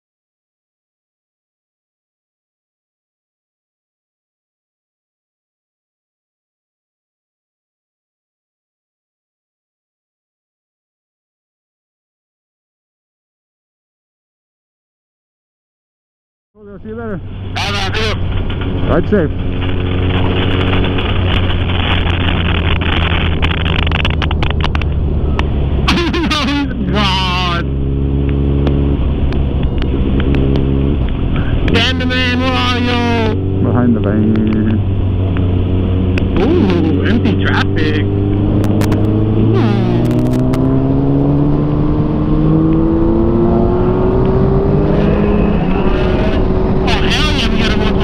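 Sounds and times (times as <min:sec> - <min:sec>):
motorcycle engine cruising: 0:16.8 - 0:48.0
wind rushing over microphone: 0:17.2 - 0:48.0
sharp clicks: 0:38.6 - 0:39.2.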